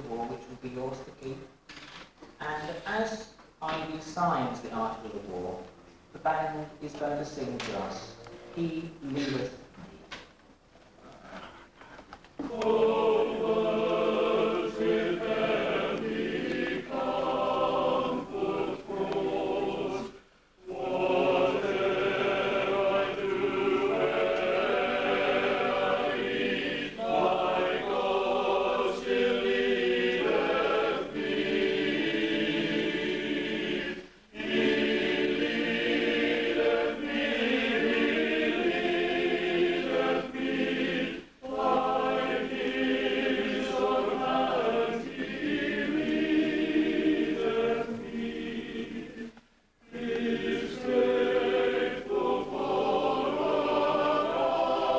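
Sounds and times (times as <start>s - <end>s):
mixed choir singing: 12.4s - 54.9s.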